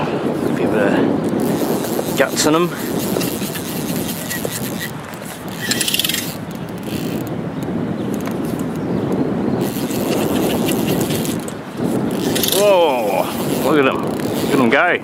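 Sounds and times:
fly reel drag ratcheting: 1.2 - 7.3, 9.6 - 14.7.

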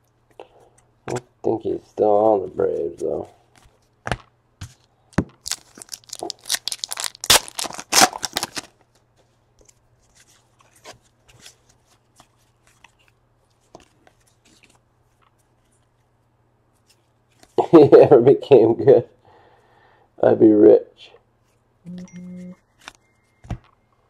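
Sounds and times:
wrapper tearing and crinkling: 5.4 - 8.8
cards rustling: 5.5 - 8.8.

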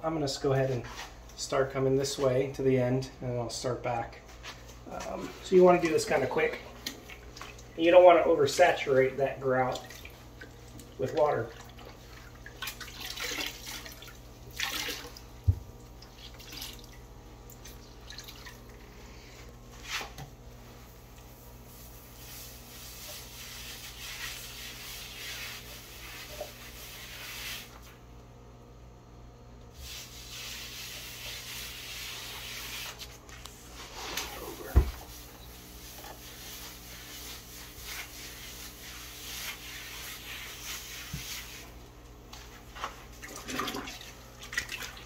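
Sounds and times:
water splashing in bucket: 9.6 - 18.8, 43.1 - 45.0
sponge scrubbing tile: 19.1 - 28.0, 29.8 - 41.8.

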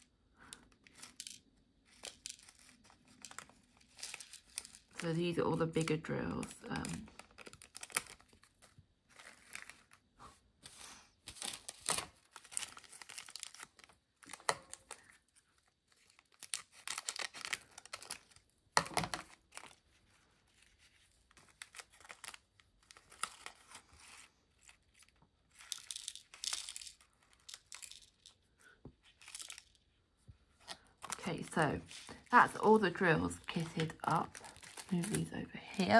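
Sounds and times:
plastic packets crinkling and tearing: 0.4 - 5.2, 6.6 - 10.1, 11.2 - 29.9, 30.5 - 35.9.

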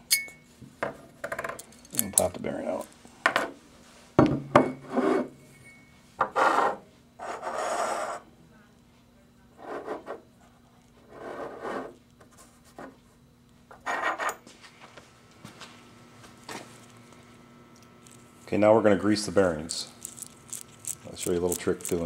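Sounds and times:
metal parts scraping on wood: 19.7 - 22.0.

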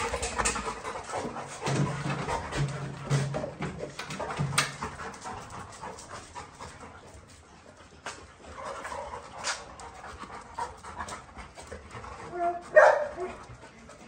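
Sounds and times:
dogs panting: 0.0 - 14.0
paws clicking on paving stones: 0.0 - 14.0.

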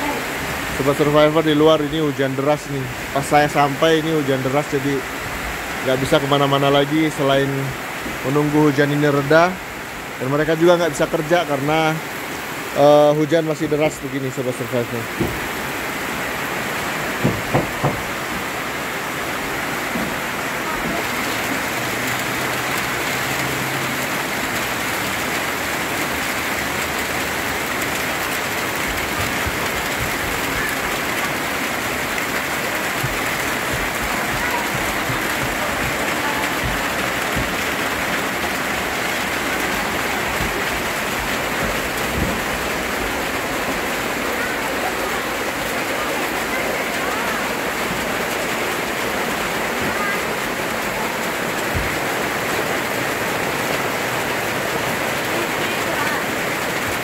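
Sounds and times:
heavy rain downpour: 0.0 - 57.0
short knocks: 15.1 - 15.6, 17.2 - 18.2.

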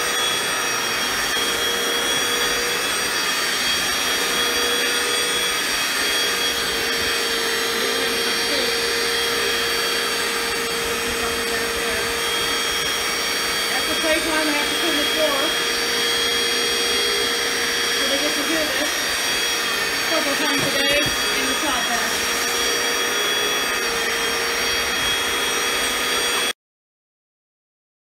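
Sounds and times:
electric floor cleaner running: 0.0 - 26.6.

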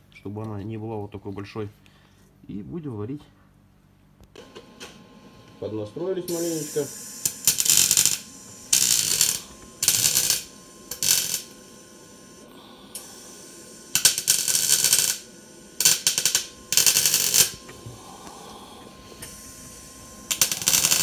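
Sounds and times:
welding arc crackling: 5.6 - 21.0.

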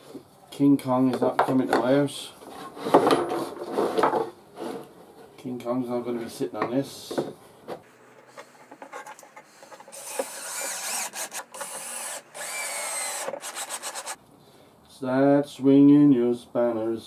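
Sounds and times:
cordless drill whine: 9.6 - 14.2.

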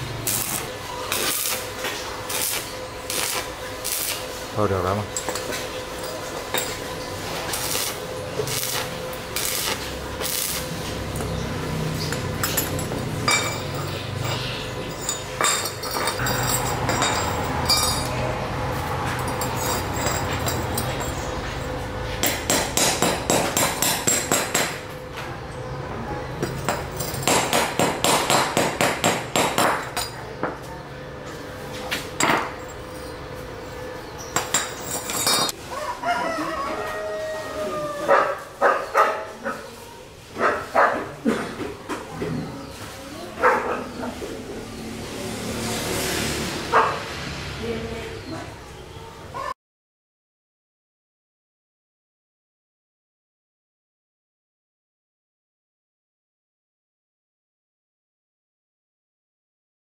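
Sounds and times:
arc welder crackling: 0.0 - 15.8
sharp metal knocks: 22.2 - 24.8, 26.4 - 30.2.

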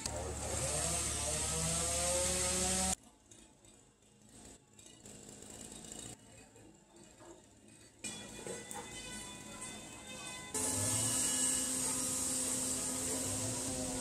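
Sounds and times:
machine hum with rising tones: 0.0 - 3.0, 10.6 - 14.0.

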